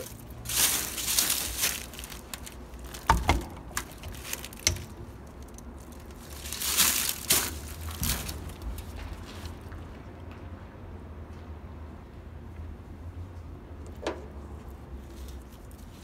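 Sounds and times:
rustling: 0.0 - 9.7.

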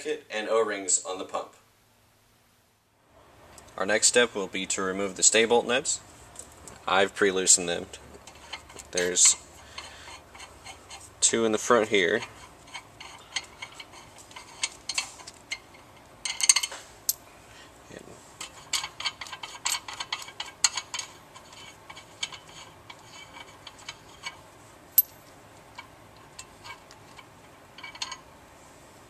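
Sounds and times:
metal nuts and washers clinking: 8.3 - 10.5, 12.0 - 17.3, 25.0 - 28.3.

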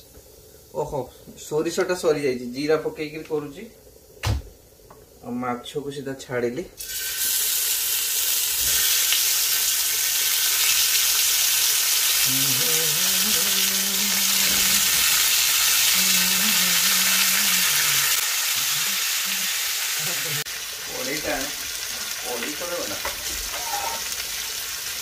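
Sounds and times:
fish sizzling in hot oil: 6.8 - 25.0.

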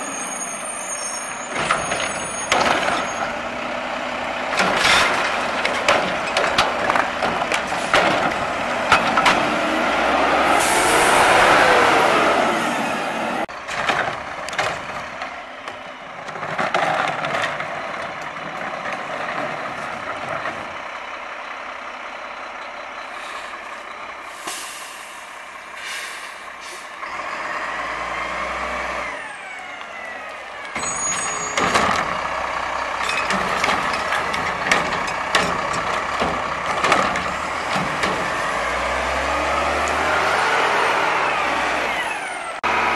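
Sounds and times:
diesel engine running: 1.4 - 42.9
metal clunks: 4.5 - 9.6, 30.8 - 32.3, 33.0 - 38.8
air brakes hissing: 10.5 - 11.2, 23.0 - 27.0.

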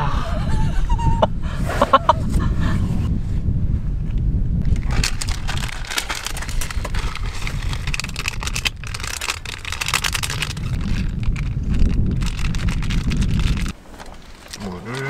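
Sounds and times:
wind rumbling on microphone: 0.0 - 15.0
irregular crackling patter: 4.6 - 15.0.

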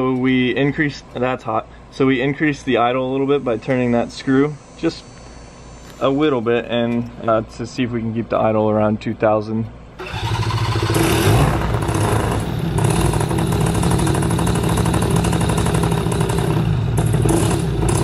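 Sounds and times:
two-stroke engine idling: 10.0 - 18.0.

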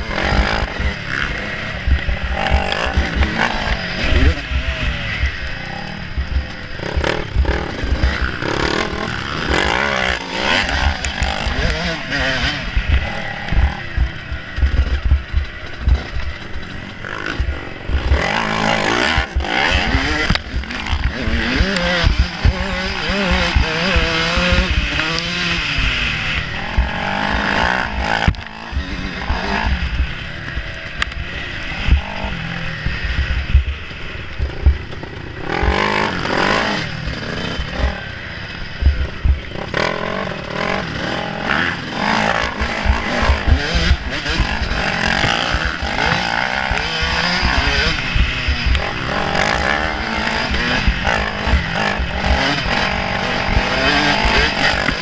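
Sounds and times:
dirt bike engine revving: 0.0 - 55.0
short low thumps: 12.7 - 16.4, 31.8 - 34.9, 38.7 - 39.6.

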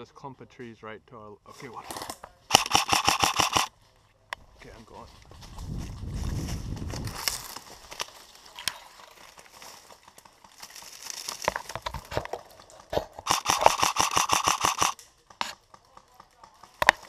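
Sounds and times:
airsoft rifle firing burst: 2.5 - 3.7, 13.2 - 15.6
dry leaves crunching and rustling: 5.0 - 12.5.

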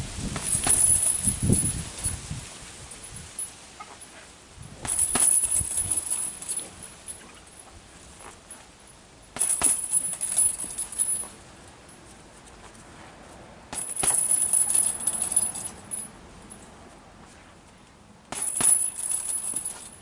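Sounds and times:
metal chain rattling: 0.3 - 2.2, 2.8 - 4.2, 4.8 - 12.0, 13.7 - 16.7, 18.3 - 20.0.

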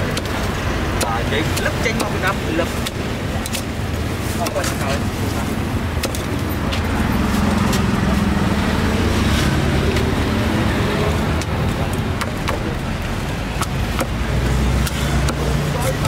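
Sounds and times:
street traffic: 0.0 - 16.0
sharp clicks and knocks: 6.0 - 6.8, 11.3 - 12.9, 13.5 - 14.2.

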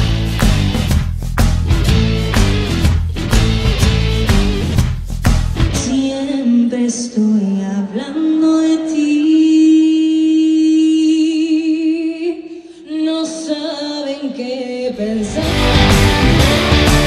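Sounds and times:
woman singing a capella: 5.8 - 15.6.

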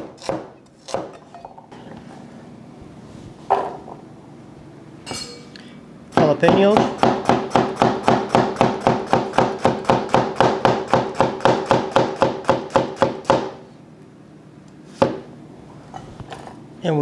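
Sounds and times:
cleaver chopping on cutting board: 0.0 - 1.2, 6.2 - 13.6.

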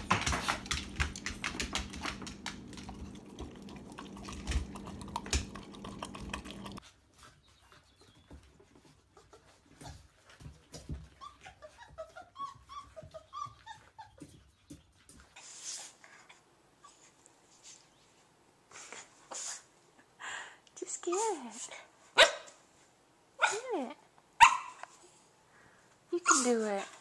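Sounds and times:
low steady hum: 0.0 - 6.8
puppies crunching kibble: 0.0 - 6.8
rapid clicking and tapping: 0.0 - 6.8
high puppy squeaks: 11.1 - 14.4.

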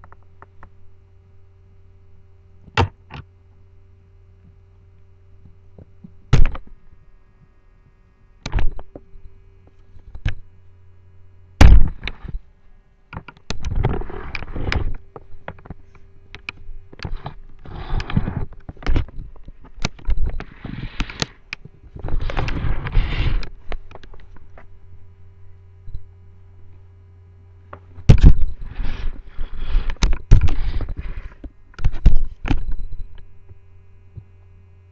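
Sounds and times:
steady low hum: 0.0 - 34.9
knocks and thumps: 27.8 - 29.2.

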